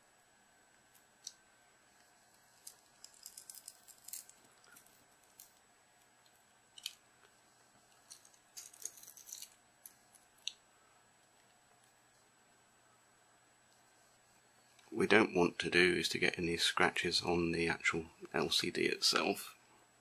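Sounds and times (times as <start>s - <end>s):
glass crackling as peeled: 2.3s - 5.6s, 8.0s - 9.6s.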